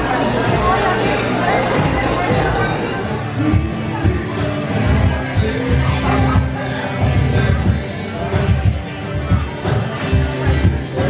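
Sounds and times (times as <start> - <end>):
acoustic guitar: 0.0 - 11.0
electric guitar: 0.0 - 11.0.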